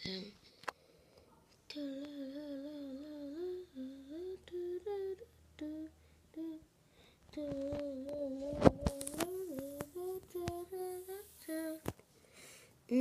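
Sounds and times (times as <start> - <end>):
child humming a tune: 1.7 - 6.7, 7.4 - 11.8.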